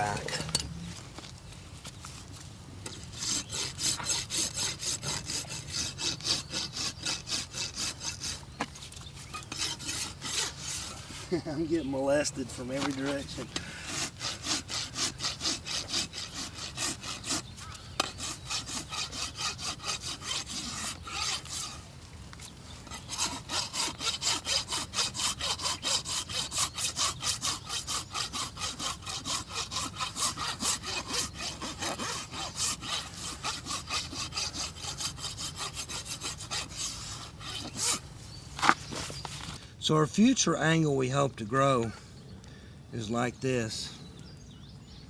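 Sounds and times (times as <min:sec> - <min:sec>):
hoof rasp filing: 0:02.9 - 0:11.4, 0:12.2 - 0:21.8, 0:22.8 - 0:38.0, 0:38.6 - 0:39.6.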